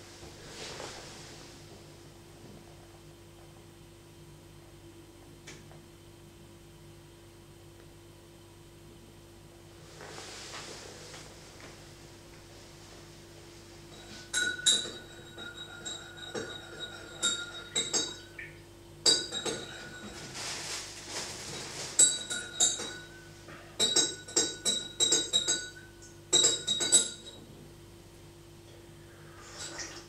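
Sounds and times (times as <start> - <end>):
short rustle: 20.2 - 22.0.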